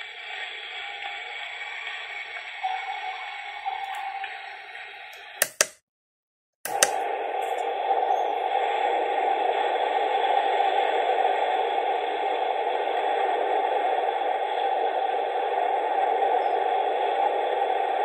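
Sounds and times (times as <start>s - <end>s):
steady whooshing noise from speaker: 6.7s - 18.0s.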